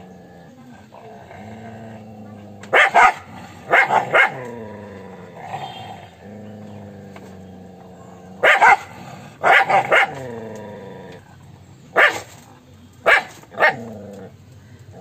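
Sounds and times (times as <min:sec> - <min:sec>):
dog growling: 0:00.0 - 0:11.6, 0:13.6 - 0:15.0
dog barking: 0:02.7 - 0:04.5, 0:08.4 - 0:10.2, 0:12.0 - 0:12.3, 0:13.0 - 0:13.9.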